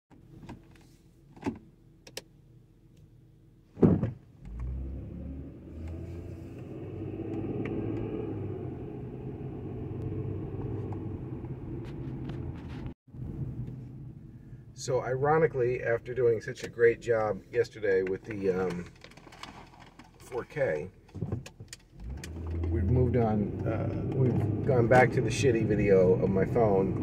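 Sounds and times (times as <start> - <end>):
car engine and road noise: 0.1 - 27.0
thump: 3.8 - 4.2.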